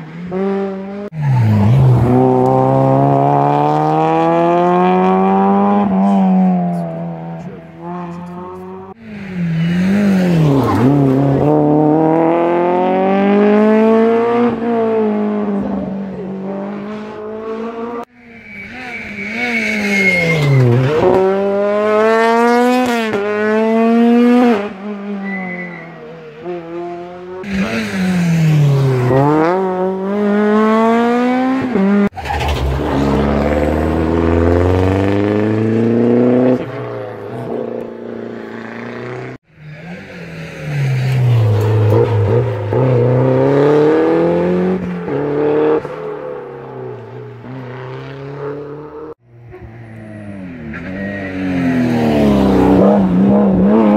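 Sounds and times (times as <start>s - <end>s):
rally car engines accelerating: 0.3s - 53.9s.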